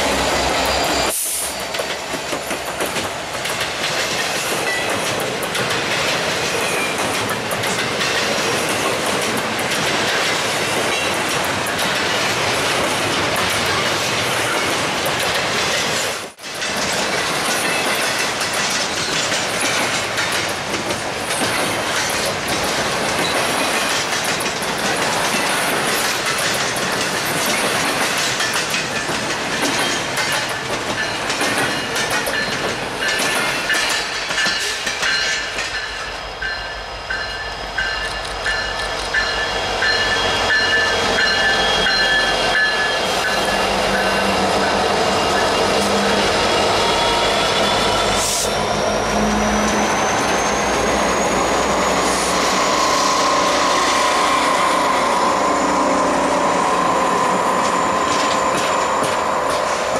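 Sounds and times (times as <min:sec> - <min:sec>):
high wheel squeal: 0:00.0 - 0:02.7, 0:36.5 - 0:59.9
steel wheels clattering on rails: 0:00.3 - 0:47.0, 0:56.6 - 0:59.9
diesel locomotive engine hum: 0:34.9 - 0:59.9.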